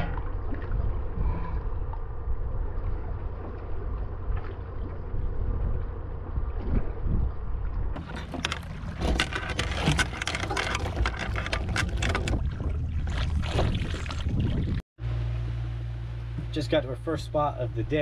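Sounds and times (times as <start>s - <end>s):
steady low rumble: 0.0s - 9.5s
anchor chain rattling: 8.0s - 12.6s.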